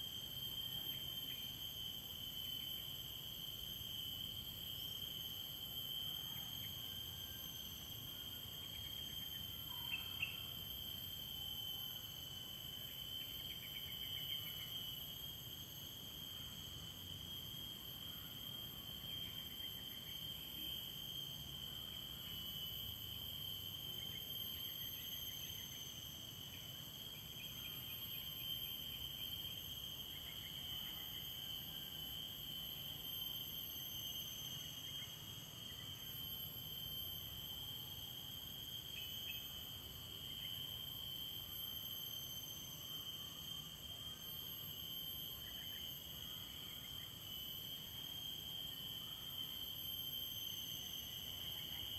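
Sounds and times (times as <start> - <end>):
insect chorus trilling: 0.0 - 51.9.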